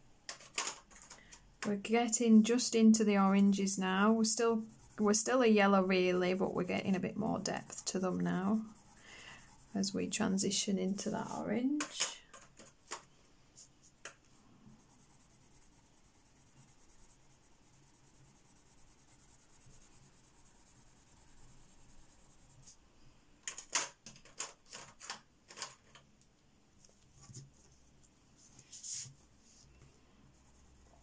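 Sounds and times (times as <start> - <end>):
pencil scratching on paper: 2.5 - 11.4, 14.7 - 22.8, 30.3 - 31.0.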